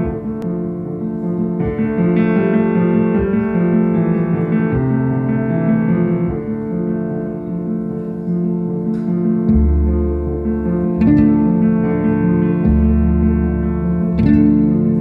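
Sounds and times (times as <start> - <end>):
piano chords: 0.0 - 15.0.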